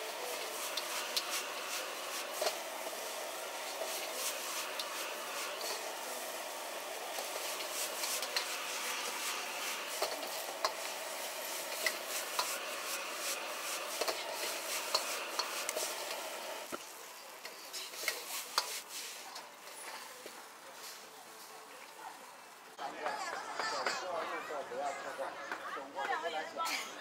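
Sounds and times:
noodles sizzling in a wok: 0:00.0 - 0:22.8
metal utensils clinking on pan: 0:13.9 - 0:15.9.

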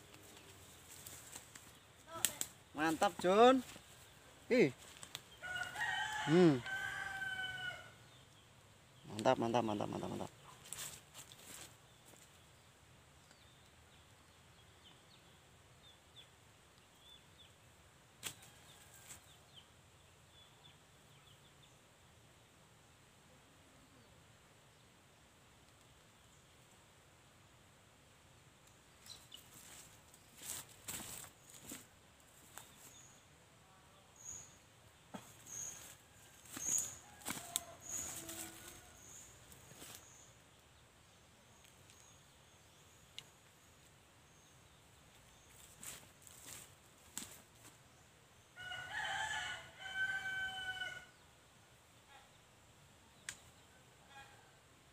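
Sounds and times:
footsteps crunching on dry leaves: 0:29.5 - 0:33.0, 0:35.4 - 0:38.8, 0:45.6 - 0:47.7.

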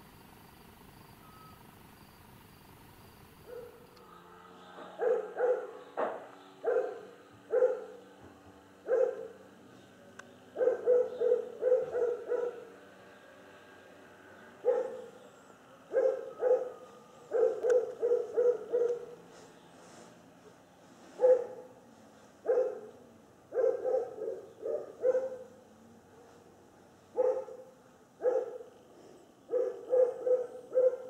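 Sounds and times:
dog barking: 0:03.4 - 0:03.8, 0:05.0 - 0:08.0, 0:08.8 - 0:09.4, 0:10.6 - 0:12.8, 0:14.6 - 0:15.2, 0:15.9 - 0:19.2, 0:21.2 - 0:21.7, 0:22.4 - 0:25.6, 0:27.1 - 0:28.7, 0:29.5 - 0:31.0.

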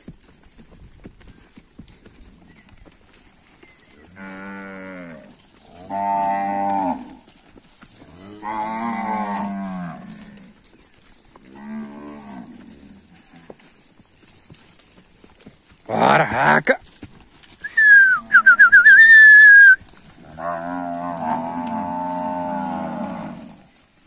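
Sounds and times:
cattle mooing: 0:04.0 - 0:07.2, 0:08.1 - 0:10.5, 0:19.6 - 0:23.6.

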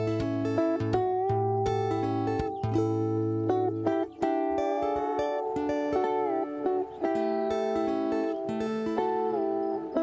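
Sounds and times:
plucked string instrument melody: 0:00.0 - 0:10.0.

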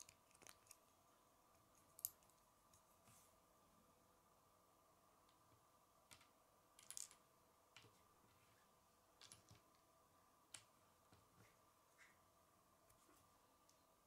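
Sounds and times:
faint steady hum: 0:00.0 - 0:14.0
plastic pieces clicking on table: 0:06.1 - 0:07.2.

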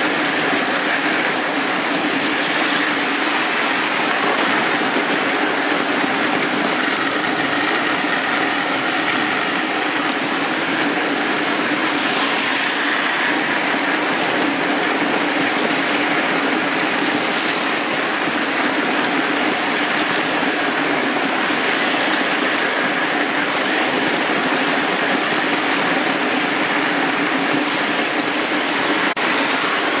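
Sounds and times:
wheels rattling over track: 0:00.0 - 0:30.0.

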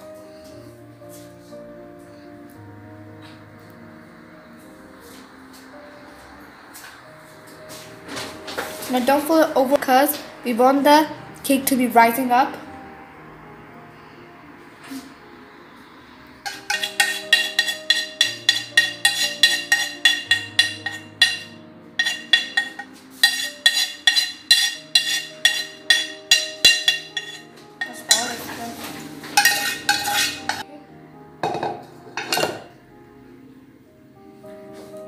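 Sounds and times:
background music: 0:00.0 - 0:35.0
spoon clanking on metal bowl: 0:16.5 - 0:28.5, 0:29.4 - 0:30.7, 0:31.4 - 0:32.7
spoon scraping metal bowl: 0:16.5 - 0:30.7.

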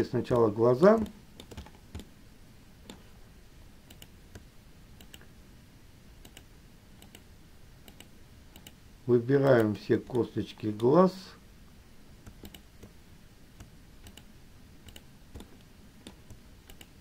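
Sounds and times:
mouse and keyboard clicks: 0:00.3 - 0:02.1, 0:12.2 - 0:12.9, 0:13.6 - 0:17.0.

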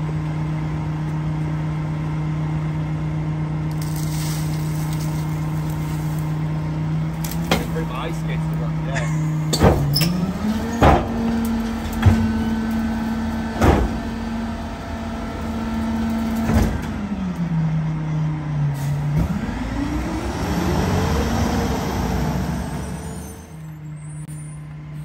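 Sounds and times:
diesel truck engine revving: 0:00.0 - 0:25.0
hydraulic packer blade compacting: 0:03.7 - 0:18.0.

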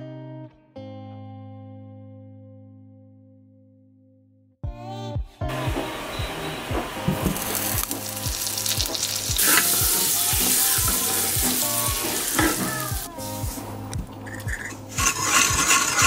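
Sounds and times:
butter sizzling in a pan: 0:07.1 - 0:13.6, 0:14.9 - 0:16.0.

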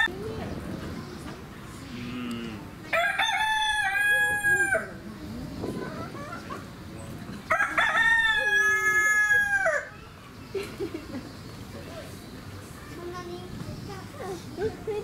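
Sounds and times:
rooster crowing: 0:02.9 - 0:04.9, 0:07.5 - 0:09.9.

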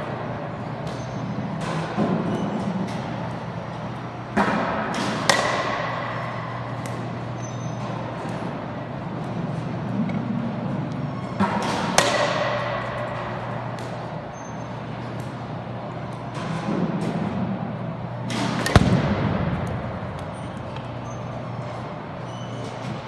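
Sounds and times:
bat hitting baseballs: 0:04.3 - 0:07.3, 0:11.4 - 0:14.2, 0:18.3 - 0:21.7.

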